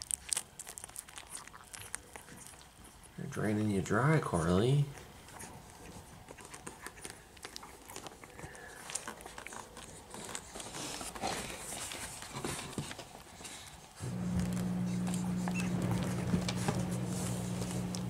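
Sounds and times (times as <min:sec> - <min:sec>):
puppies suckling: 0:00.0 - 0:18.0
rustle of fur: 0:04.8 - 0:18.0.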